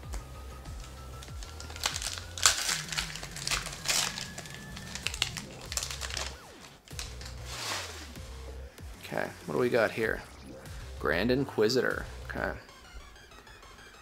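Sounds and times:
plastic wrapper crinkling: 0.8s - 8.0s.

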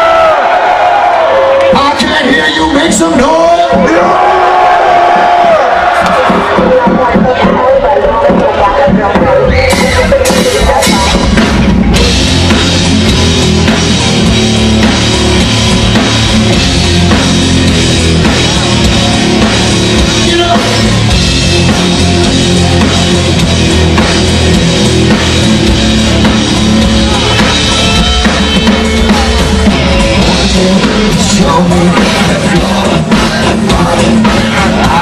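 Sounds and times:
drum kit: 0.0s - 35.0s
electric guitar: 9.1s - 35.0s.

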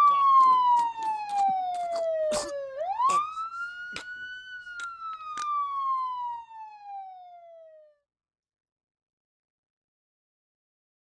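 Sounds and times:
police siren wail: 0.0s - 8.0s.

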